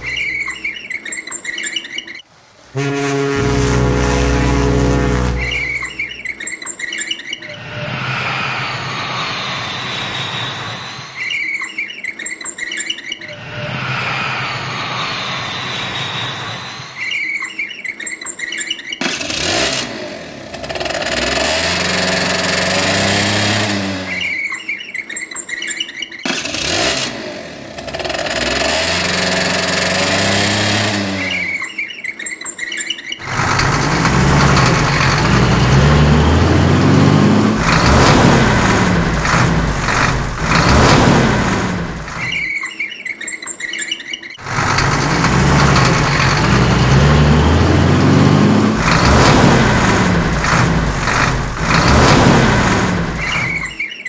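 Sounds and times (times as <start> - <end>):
vehicle engine revving: 0.0 - 0.6, 2.8 - 6.3, 19.0 - 24.6, 26.3 - 31.7, 33.2 - 42.4, 44.4 - 53.8
heavy truck engine revving: 0.0 - 0.7, 2.8 - 6.4, 19.0 - 24.6, 26.3 - 31.7, 33.2 - 42.4, 44.4 - 53.8.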